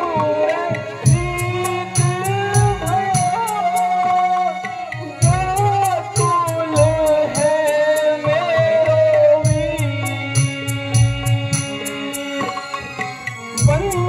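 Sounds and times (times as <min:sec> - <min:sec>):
drum beat: 0:05.2 - 0:08.0, 0:09.4 - 0:12.2, 0:13.5 - 0:14.0.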